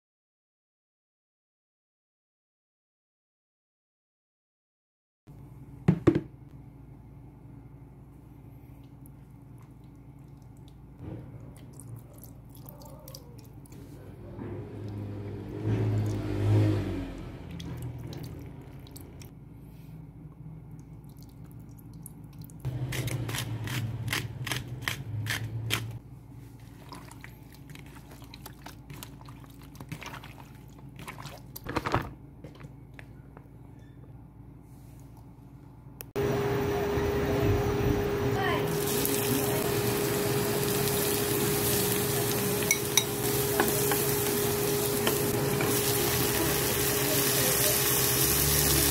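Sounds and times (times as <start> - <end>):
wet squishy meat: 8.8 - 13.8, 17.5 - 19.3, 26.5 - 31.7
clicks and drips: 17.5 - 19.3.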